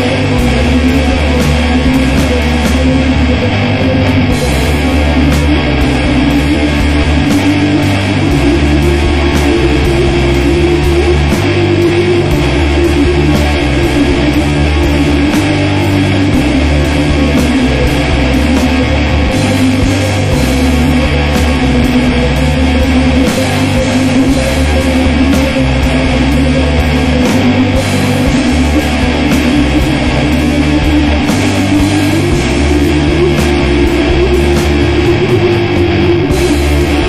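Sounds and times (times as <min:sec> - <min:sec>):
rock music with electric guitar: 0:00.0 - 0:37.0.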